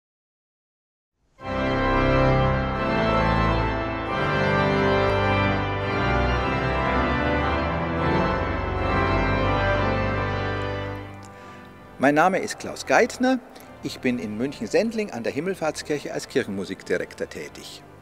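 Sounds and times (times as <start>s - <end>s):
pipe organ playing chords: 1.4s - 18.0s.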